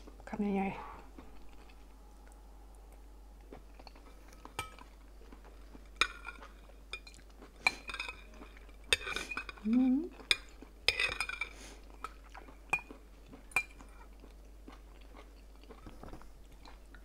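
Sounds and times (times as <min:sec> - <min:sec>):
metal spoon clinking glass bowl: 0:10.3 - 0:11.5.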